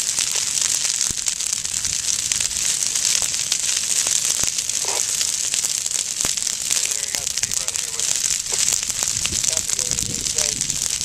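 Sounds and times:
fire crackling: 0.0 - 11.0.

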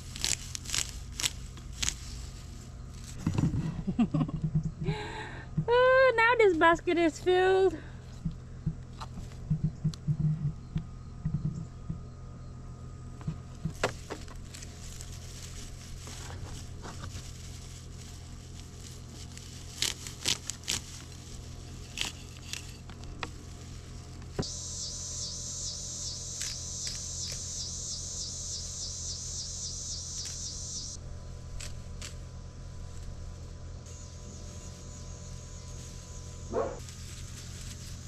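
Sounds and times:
scissors snipping herb stems: 0.0 - 2.2, 18.3 - 23.4, 26.3 - 27.5, 31.5 - 32.2
low steady hum: 0.0 - 38.0
high pulsing buzz: 9.5 - 38.0.

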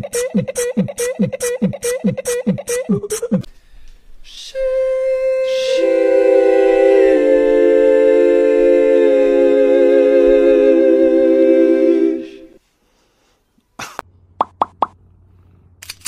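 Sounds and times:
slow music of held notes: 4.6 - 12.6.

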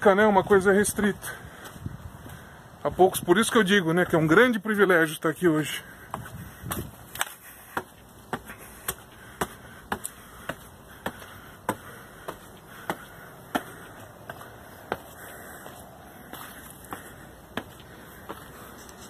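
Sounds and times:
footsteps on stone: 1.2 - 2.5, 5.8 - 19.0.

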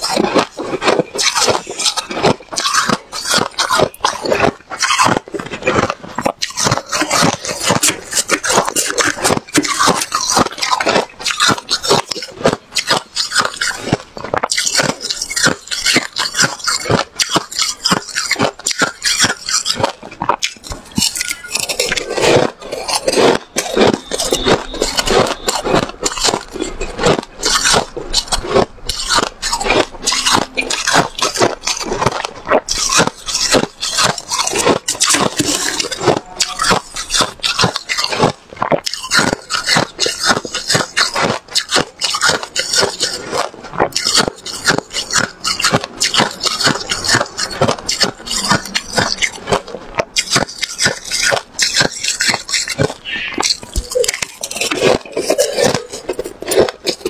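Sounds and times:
chewing crunchy frost: 0.0 - 57.0
metal spoon scraping bowl: 20.5 - 38.2, 43.8 - 57.0.

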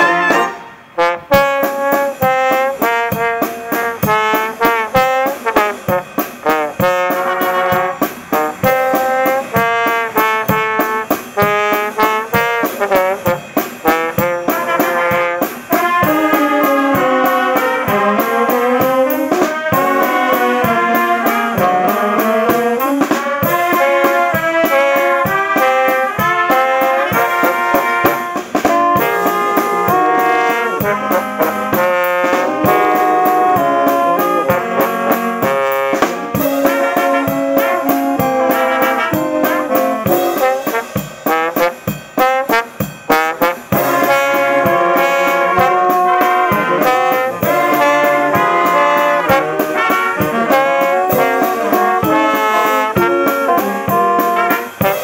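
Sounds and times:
brass band playing a tune: 0.0 - 55.0
drum kit beat: 0.0 - 55.0.

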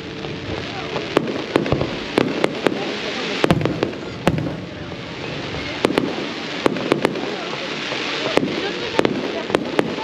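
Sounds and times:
steady wash of noise: 0.0 - 10.0
firework shells bursting: 1.0 - 4.8, 5.8 - 10.0.

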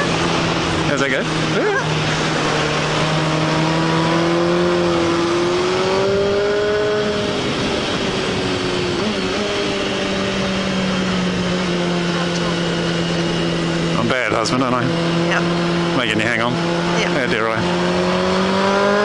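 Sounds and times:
wind rush: 0.0 - 13.9
motorcycle engine running: 0.0 - 19.0.

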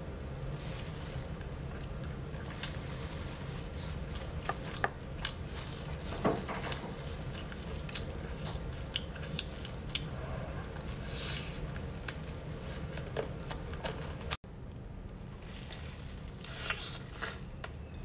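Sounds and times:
person chewing food: 1.2 - 5.5, 6.7 - 13.6.

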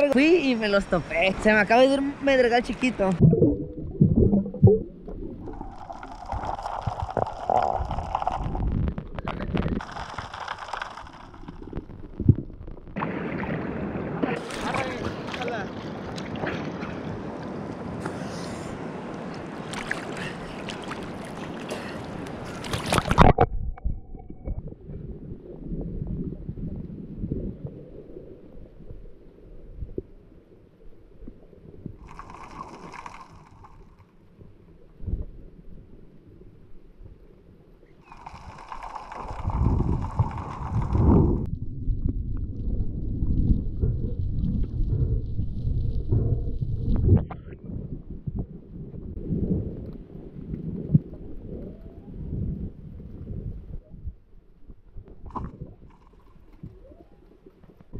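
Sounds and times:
underwater gurgles and knocks: 3.1 - 17.5, 19.7 - 57.9
waves lapping and splashing: 13.0 - 23.4, 32.0 - 34.3, 38.0 - 41.5.

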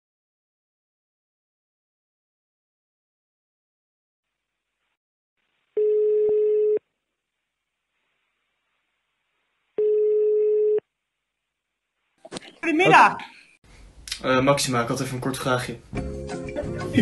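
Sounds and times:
phone ringback tone: 5.8 - 6.8, 9.8 - 10.8.

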